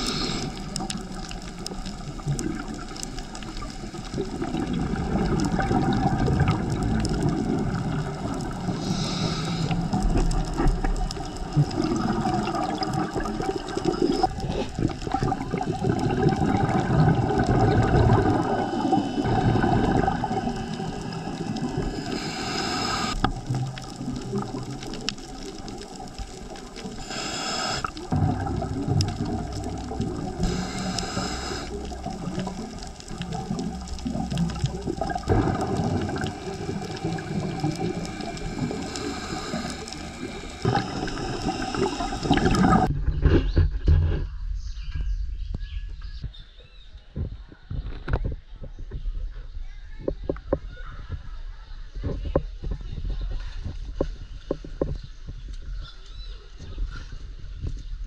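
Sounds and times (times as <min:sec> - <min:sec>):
hissing gush of bubbles: 0:00.0 - 0:42.9
underwater bubbles gurgling: 0:00.0 - 0:42.9.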